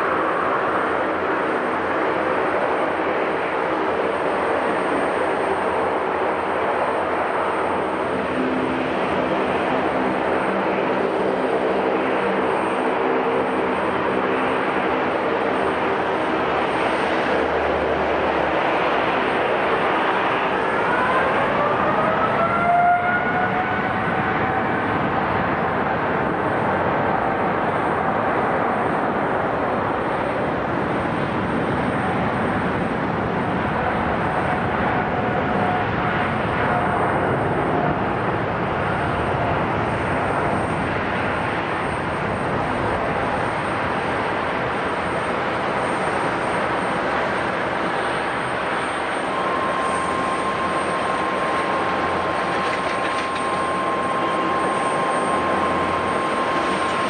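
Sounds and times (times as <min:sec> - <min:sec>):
jet engine whine rising: 0:00.0 - 0:57.0
jet engines running: 0:00.0 - 0:57.0.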